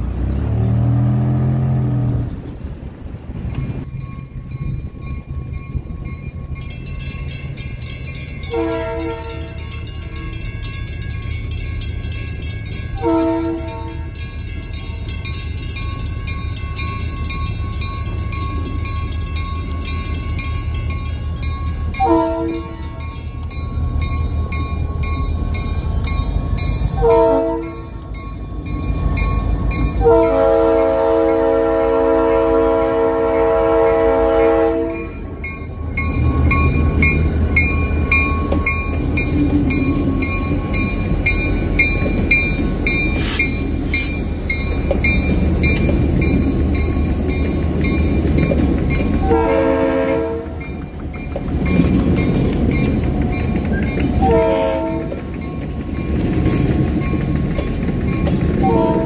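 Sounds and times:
locomotive engine rumble: 0.0s - 59.0s
locomotive air horn blasts: 8.5s - 9.6s, 13.0s - 14.1s, 22.0s - 23.0s, 27.0s - 28.0s, 30.0s - 35.2s, 49.2s - 50.6s, 54.2s - 55.2s, 58.6s - 59.0s.

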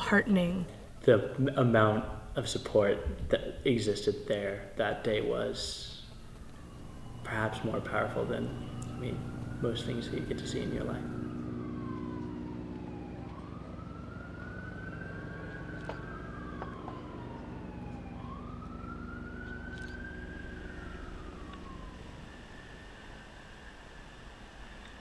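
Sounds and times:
emergency siren wailing: 0.0s - 25.0s
low steady rumble: 0.0s - 25.0s.

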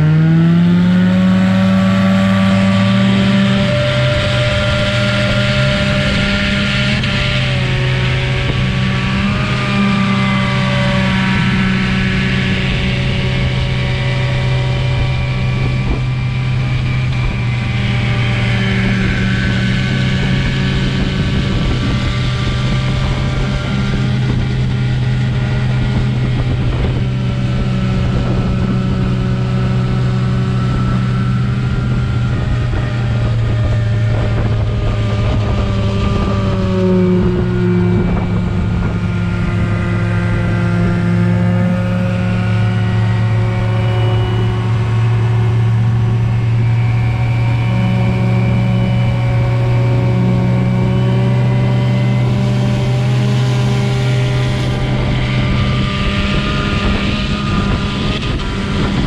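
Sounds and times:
powerboat engines running: 11.1s - 59.0s.

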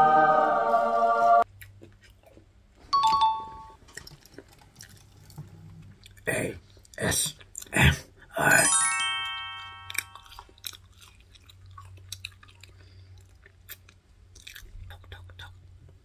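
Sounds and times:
chewing and mouth clicks: 1.6s - 2.5s, 3.8s - 7.8s, 9.9s - 16.0s
twinkling chime sound effect: 3.0s - 3.8s, 8.5s - 10.4s.

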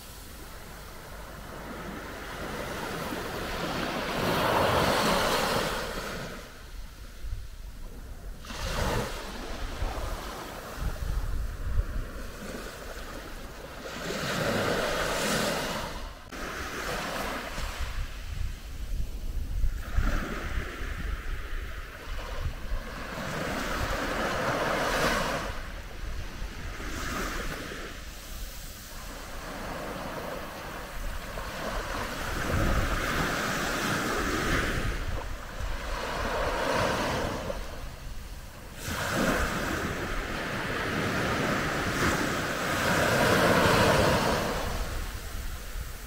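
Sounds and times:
waves washing onto beach: 0.0s - 46.0s.

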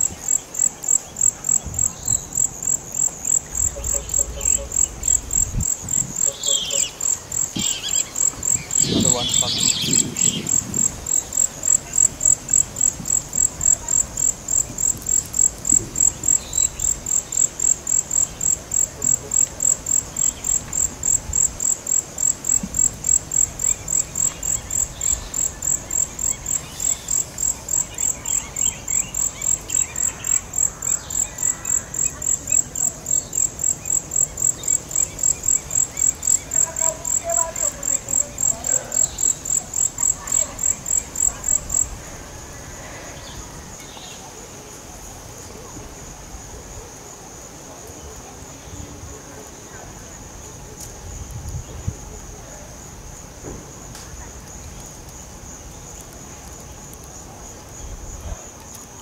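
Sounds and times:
insect chirping: 0.0s - 44.2s
faint bird calls: 3.4s - 5.3s.

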